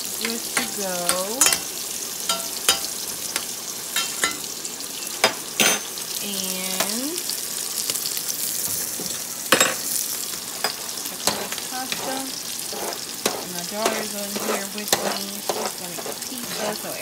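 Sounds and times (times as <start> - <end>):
food sizzling in pans: 0.0 - 17.0
metal spoon clinking against pot: 0.2 - 4.4, 13.2 - 16.8.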